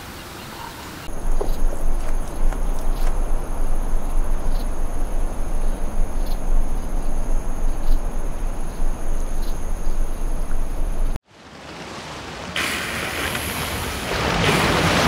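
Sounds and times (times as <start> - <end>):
insect chorus high tones: 1.0 - 11.2
low rumble: 1.1 - 11.2.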